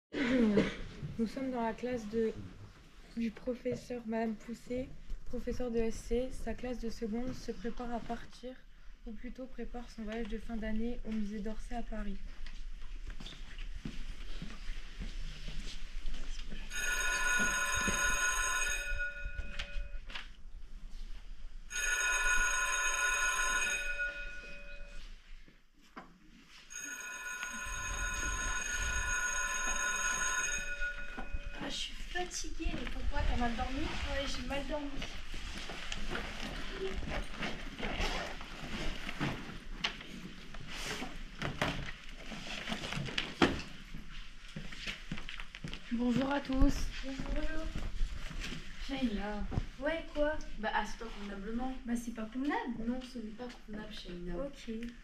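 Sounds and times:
electric bell ringing: 16.7 - 20.1, 21.7 - 25.1, 26.7 - 31.6.

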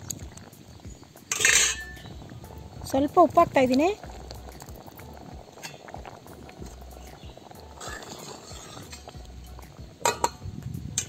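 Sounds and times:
ladle stirring in metal pot: 1.1 - 10.4
ladle clinking against pot: 1.3 - 2.1, 10.0 - 10.4.

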